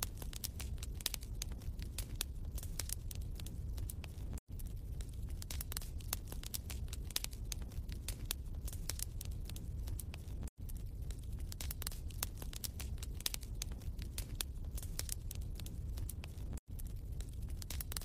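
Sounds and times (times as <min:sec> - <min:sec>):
wood fire crackling: 0:00.0 - 0:18.0.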